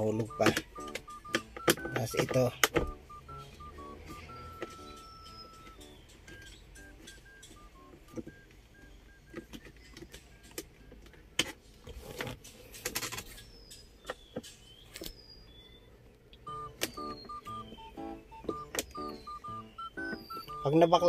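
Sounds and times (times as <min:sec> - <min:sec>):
short beeping tones: 0:00.0 - 0:11.0, 0:16.4 - 0:21.0.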